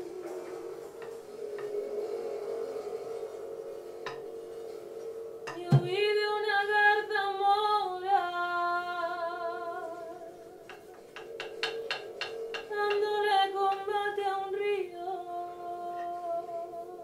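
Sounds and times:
low drone: 0.0 - 17.0
soft thump: 5.5 - 6.0
woman singing a long note: 5.5 - 10.8, 12.7 - 17.0.

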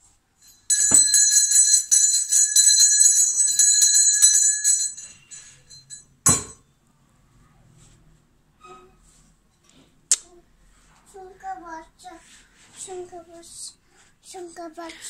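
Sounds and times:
hand bell ringing rapidly: 0.4 - 6.0.

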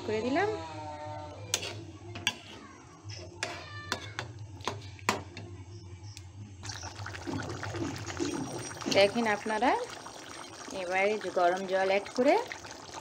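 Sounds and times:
spatula scraping metal pan: 1.5 - 2.6.

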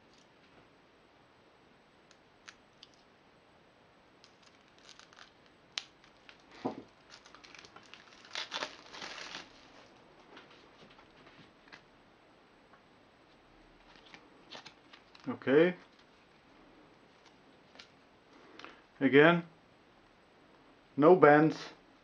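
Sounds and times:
plastic wrap crinkling and tearing: 4.2 - 10.0, 13.8 - 16.4.

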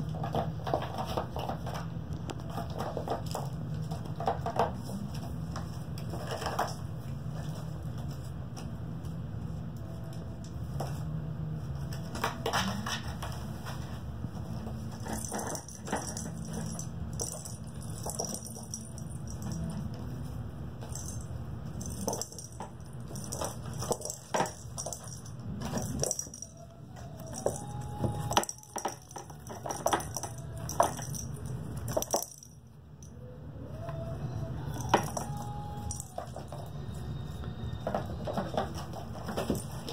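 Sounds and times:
toys clicking and rattling: 0.0 - 8.2, 14.7 - 20.1, 20.8 - 33.2, 34.6 - 39.9.

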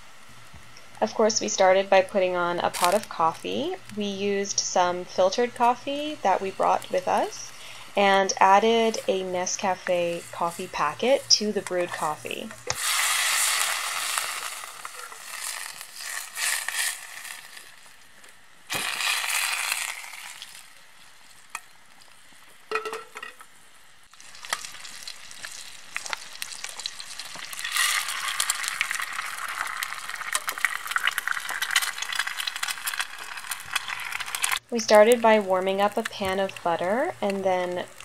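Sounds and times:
butter sizzling in frying pan: 5.2 - 22.7, 24.1 - 38.0.

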